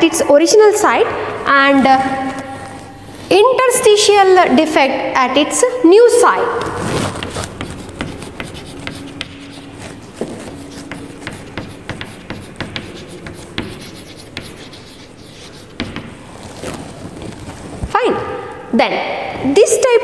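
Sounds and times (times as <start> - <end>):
chalk tapping and scratching: 6.8 - 17.5.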